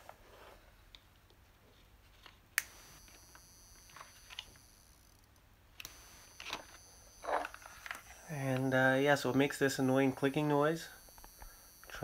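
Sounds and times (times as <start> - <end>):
faint high whine: 2.6 - 12.0.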